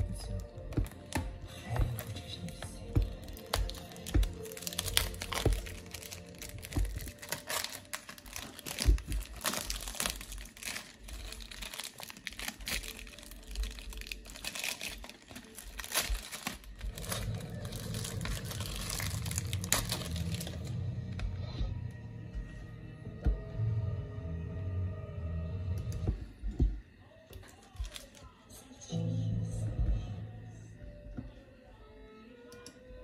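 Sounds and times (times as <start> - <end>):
plastic wrap crinkling and tearing: 0.0 - 21.1, 27.4 - 28.4.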